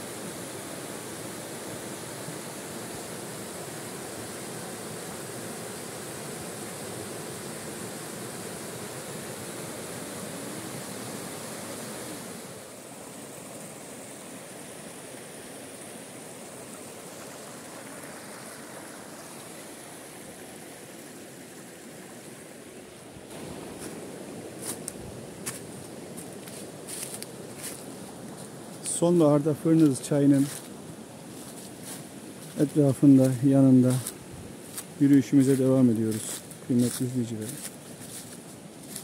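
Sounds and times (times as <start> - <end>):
footsteps on dry leaves: 23.3 - 29.0, 29.7 - 39.0.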